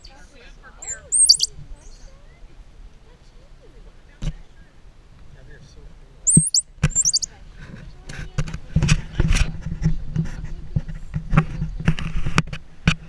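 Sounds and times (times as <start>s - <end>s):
high-pitched monkey chirps: 0.8s - 1.5s, 6.3s - 7.3s.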